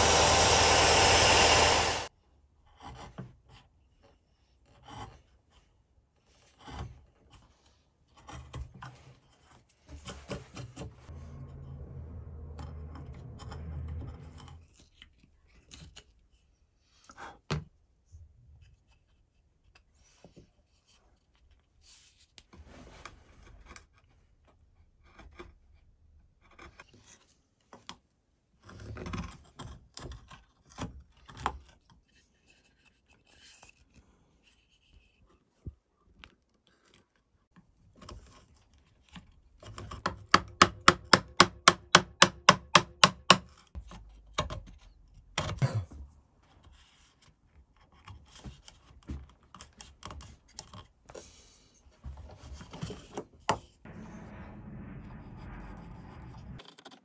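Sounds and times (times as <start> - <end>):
chisel scraping wood: 6.4 - 15.8.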